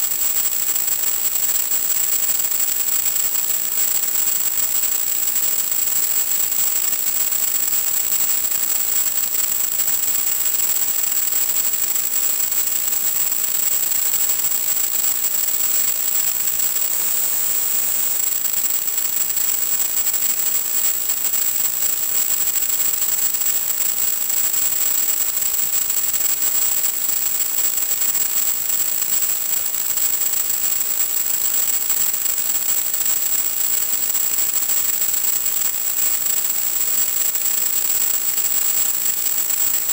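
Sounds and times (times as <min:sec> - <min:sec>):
static hiss: 0:15.7 - 0:21.4.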